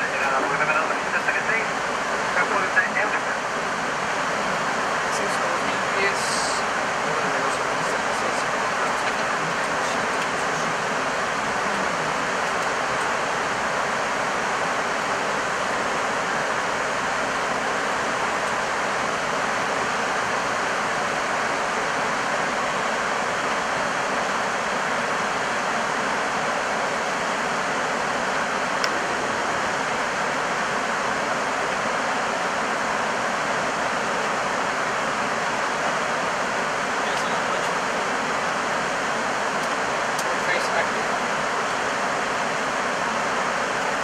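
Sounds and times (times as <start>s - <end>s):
air-conditioning: 0.0s - 44.0s
airflow rushing around cockpit: 0.0s - 44.0s.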